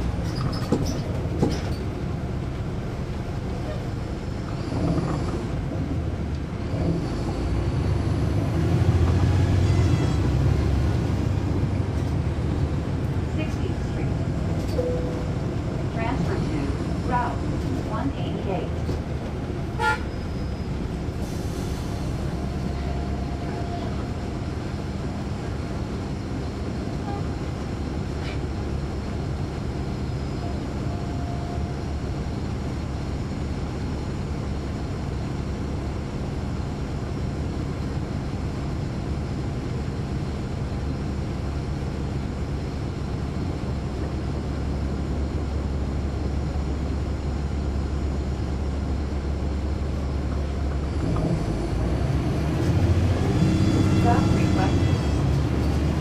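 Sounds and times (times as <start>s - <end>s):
bus diesel engine rumbling: 0.0s - 56.0s.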